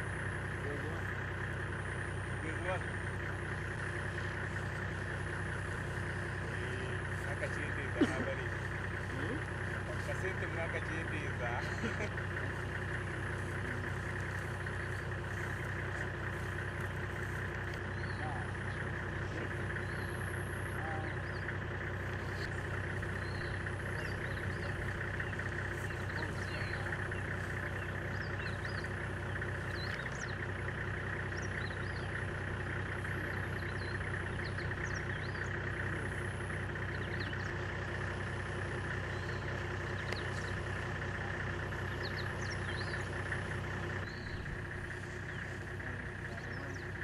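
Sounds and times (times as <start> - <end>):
low mechanical hum: 0.0 - 47.0
high bird chirps: 22.2 - 30.5, 41.8 - 43.2, 43.9 - 45.7.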